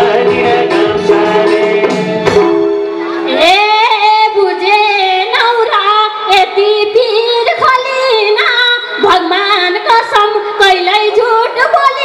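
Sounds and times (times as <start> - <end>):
hand drum beats: 0.0 - 2.8
woman singing through a microphone: 3.2 - 12.0.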